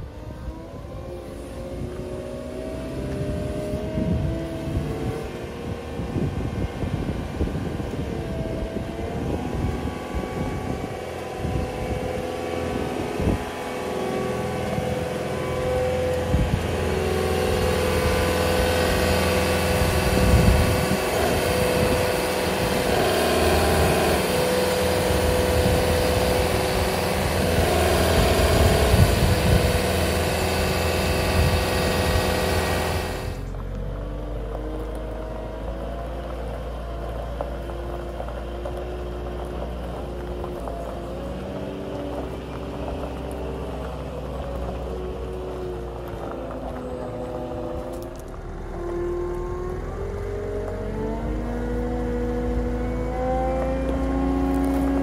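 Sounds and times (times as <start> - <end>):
wheel loader diesel engine: 0.0 - 55.0.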